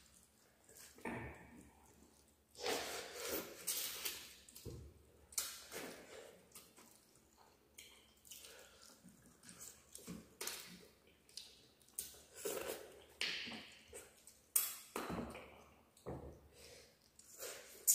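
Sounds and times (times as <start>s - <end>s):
wet chewing and lip-smacking: 5.3s - 15.0s.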